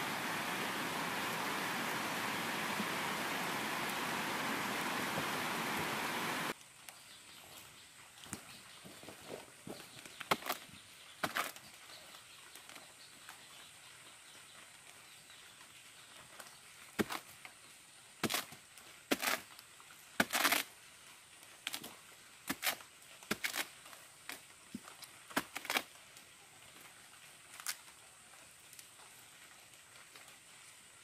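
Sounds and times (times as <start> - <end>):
machete chopping palm pith: 10.3 - 10.6, 18.2 - 19.5, 20.2 - 20.7, 22.4 - 23.7, 25.3 - 25.9.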